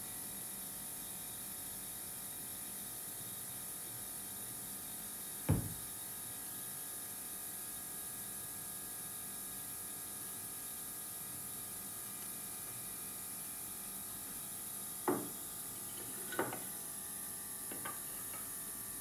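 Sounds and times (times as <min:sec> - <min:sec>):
object knocking on wooden table: 0:05.5 - 0:05.9, 0:15.1 - 0:15.4.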